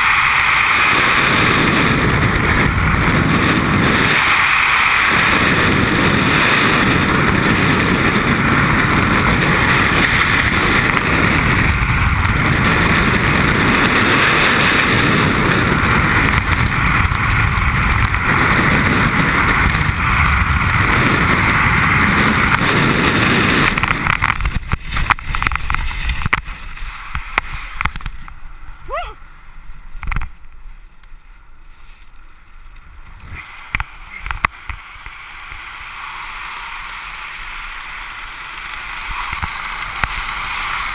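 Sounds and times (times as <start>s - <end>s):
loud rush of wind: 0.0s - 28.2s.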